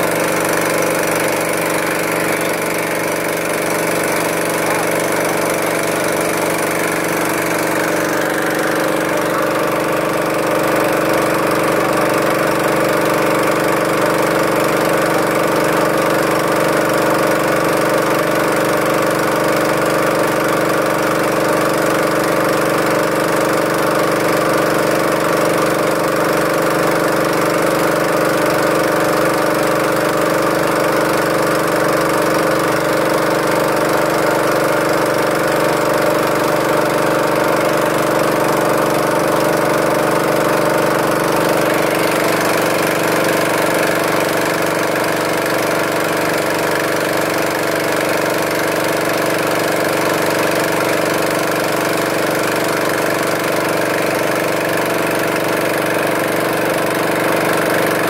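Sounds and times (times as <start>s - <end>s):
boat engine droning: 0.0s - 58.0s.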